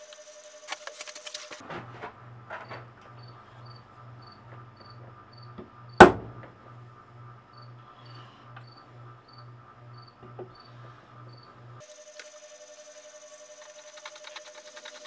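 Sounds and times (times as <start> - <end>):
hammer striking steel punch: 6.0 - 6.5.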